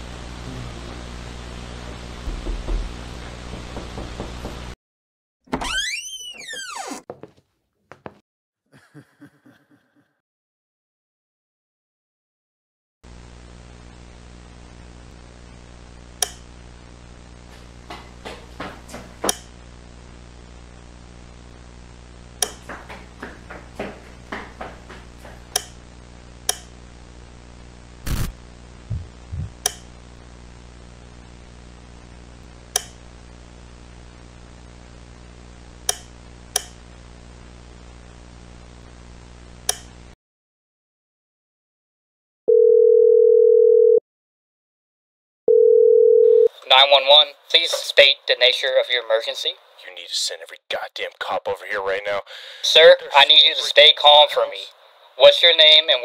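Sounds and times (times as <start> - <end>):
heavy thump: 2.2 - 4.8
small knocks: 2.3 - 4.8
low electrical hum: 13.1 - 40.2
sharp clicks and light taps: 22.4 - 23.9, 25.5 - 25.8, 26.5 - 26.7, 32.8 - 33.0, 35.9 - 36.8.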